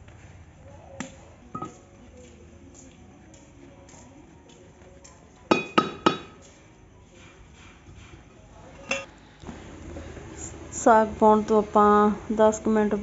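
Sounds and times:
wooden stick clinking on metal pot: 0:01.6 - 0:01.9, 0:05.5 - 0:06.4, 0:08.8 - 0:09.1.

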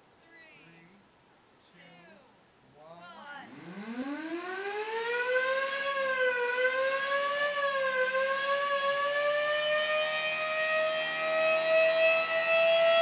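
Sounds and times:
electric siren wailing: 0:03.5 - 0:13.0.

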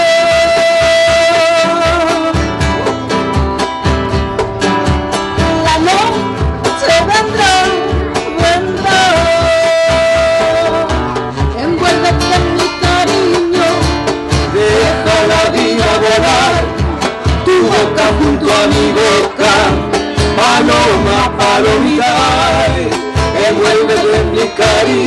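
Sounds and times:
person singing: 0:00.0 - 0:02.6, 0:05.4 - 0:25.0
nylon-string acoustic guitar: 0:00.0 - 0:25.0
steady beat: 0:01.9 - 0:18.8.

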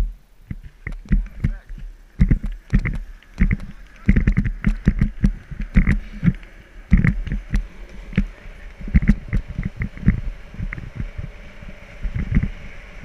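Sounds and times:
wind buffeting microphone: 0:00.0 - 0:13.0
skateboard knocks on asphalt: 0:00.8 - 0:08.3.

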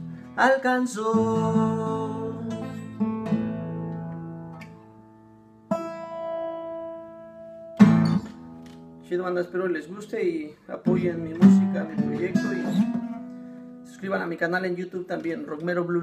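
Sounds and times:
acoustic guitar strummed chords: 0:00.0 - 0:09.1, 0:10.8 - 0:14.2.

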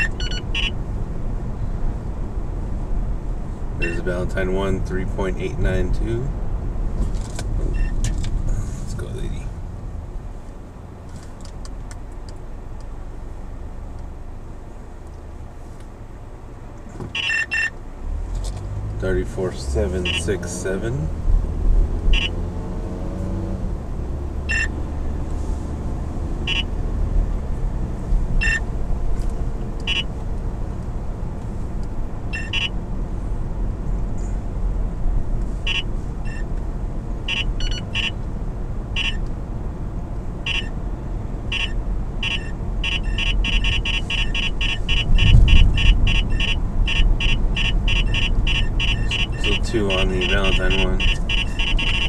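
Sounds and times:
radar detector beeping: 0:00.0 - 0:00.8, 0:17.2 - 0:17.7, 0:22.1 - 0:22.4, 0:24.5 - 0:24.8, 0:26.4 - 0:26.7, 0:28.4 - 0:28.6, 0:29.8 - 0:30.1, 0:32.3 - 0:32.8, 0:35.6 - 0:36.5, 0:37.3 - 0:38.2, 0:39.0 - 0:39.2, 0:40.4 - 0:40.8, 0:41.5 - 0:52.0
car cabin road noise: 0:00.0 - 0:52.0.

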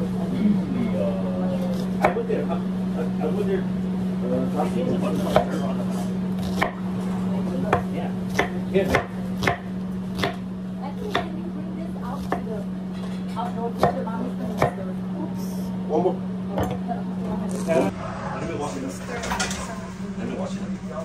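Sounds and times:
steady low hum: 0:00.0 - 0:21.0
knife chopping on cutting board: 0:06.4 - 0:06.8, 0:07.6 - 0:10.4.

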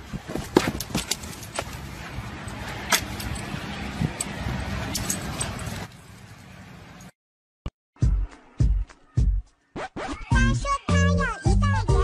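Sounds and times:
dog tags jingling: 0:02.4 - 0:05.9.

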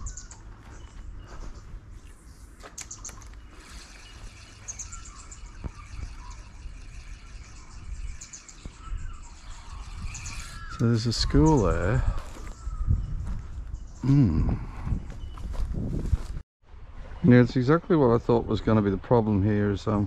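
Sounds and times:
small birds chirping: 0:00.0 - 0:15.7.

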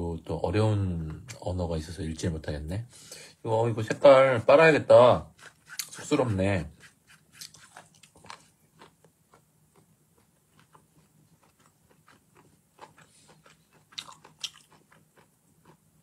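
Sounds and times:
person chewing food: 0:05.3 - 0:16.0.

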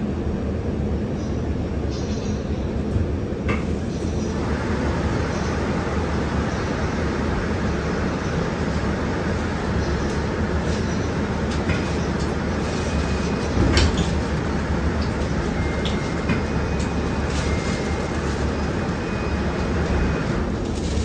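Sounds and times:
bus cabin rumble: 0:00.0 - 0:21.0
traffic swishing on wet road: 0:04.4 - 0:21.0.

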